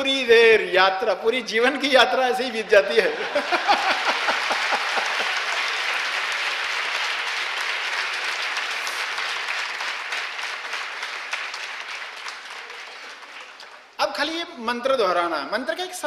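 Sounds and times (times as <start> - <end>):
audience applauding: 3.3 - 14.0.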